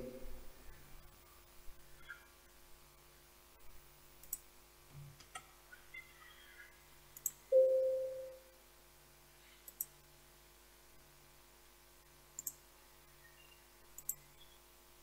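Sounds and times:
computer mouse clicking: 4.2 - 4.4, 7.2 - 7.4, 9.6 - 9.9, 12.4 - 12.6, 14.0 - 14.2
short alert chime: 7.6 - 8.4.

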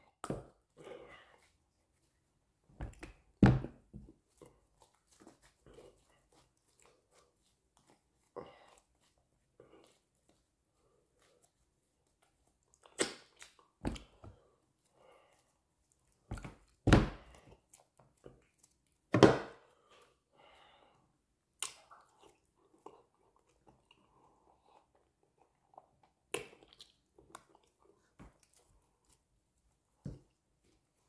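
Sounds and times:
chewing and wet mouth smacks: 12.5 - 13.8, 21.5 - 28.6.

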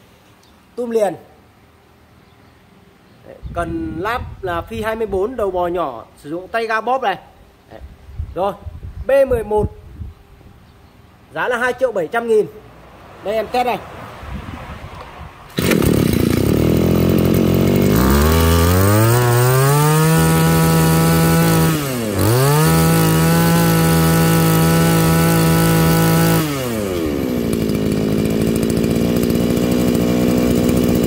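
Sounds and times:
brush cutter engine revving: 15.5 - 31.0.

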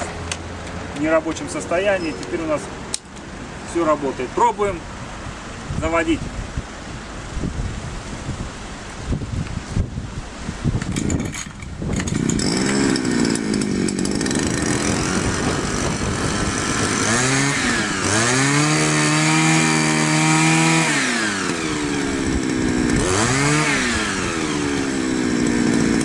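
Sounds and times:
grass trimmer engine revving: 10.9 - 26.0.

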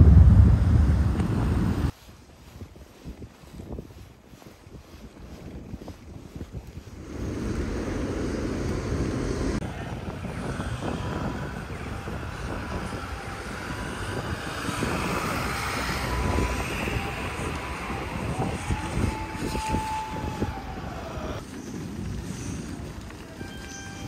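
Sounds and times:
street traffic rumble: 0.0 - 2.0, 6.9 - 24.0.

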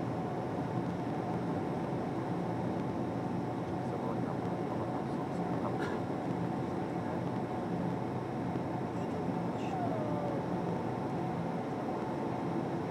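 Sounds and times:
jet engines running: 0.0 - 12.9.

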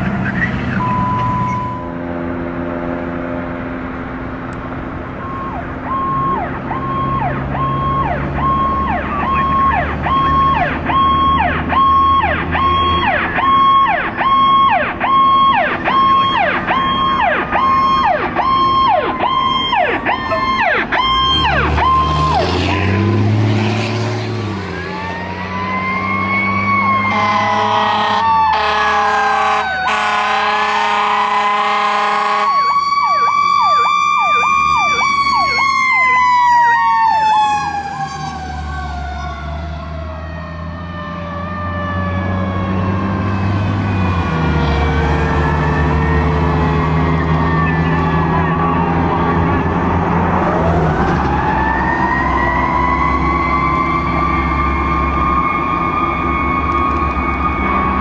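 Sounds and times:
electronic siren pulsing: 0.2 - 2.0, 5.2 - 23.2, 24.6 - 58.0
air horn blasts: 27.0 - 32.8.

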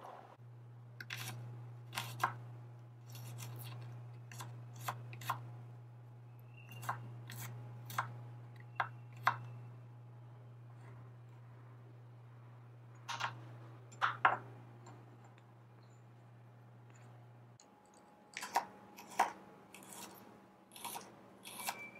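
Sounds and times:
low hum: 5.4 - 17.9.

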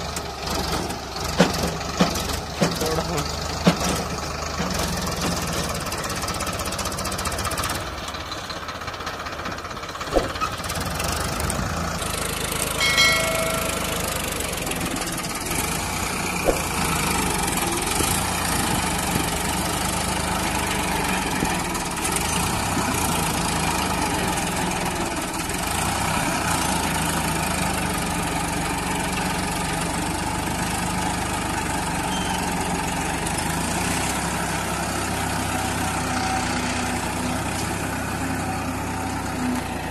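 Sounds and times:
tractor diesel engine running: 0.0 - 39.9
sharp knocks: 12.8 - 14.2, 16.3 - 17.0
short high tone: 12.8 - 14.4.

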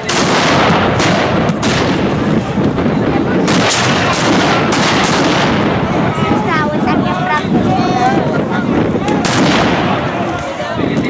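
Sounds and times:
sharp gunshot reports: 0.0 - 2.4, 3.4 - 5.9, 9.2 - 10.1
musket fire crackle: 0.0 - 7.6, 8.2 - 11.0.

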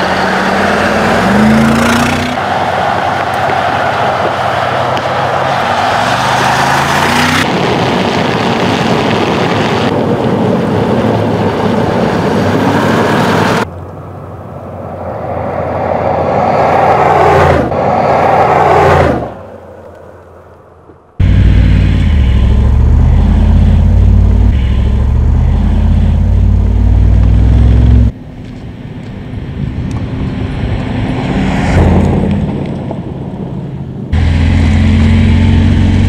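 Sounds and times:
tyre and wind noise: 0.0 - 13.8, 23.9 - 36.0
suv engine running: 21.2 - 30.1.

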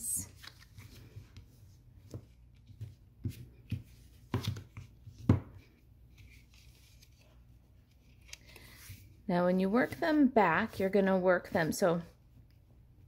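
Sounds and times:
paper rustling: 0.2 - 9.1.

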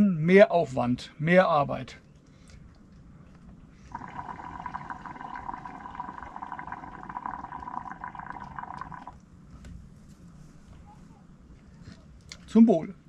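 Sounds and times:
speech: 0.0 - 2.0, 10.8 - 13.0
liquid pouring into a glass: 3.9 - 9.2.

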